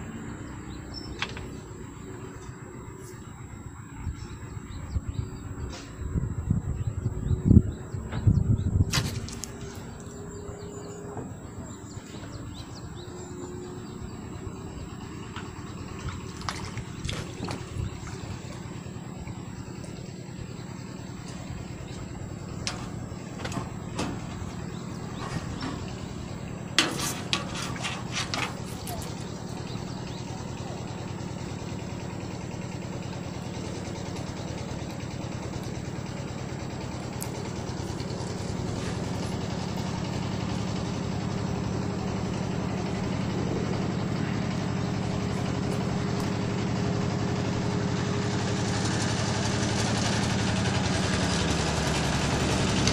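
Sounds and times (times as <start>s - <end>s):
low motor hum: 0.0s - 52.9s
outdoor background noise: 0.0s - 52.9s
fish splashing in water: 16.2s - 18.8s.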